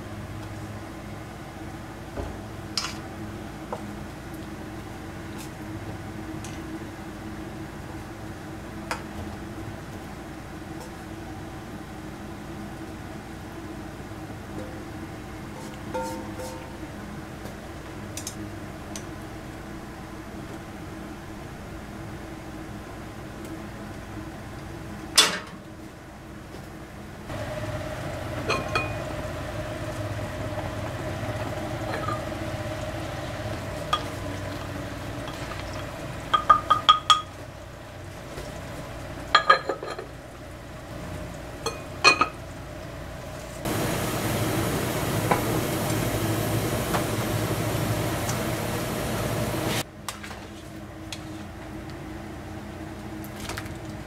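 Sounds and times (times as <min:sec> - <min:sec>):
loud steady hiss: 0:27.3 - 0:35.3, 0:43.6 - 0:49.8.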